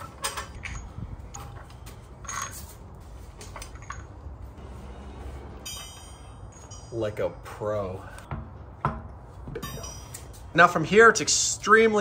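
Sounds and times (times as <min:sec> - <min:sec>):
lug wrench metallic clinks: 0:00.0 - 0:02.8, 0:05.6 - 0:07.6.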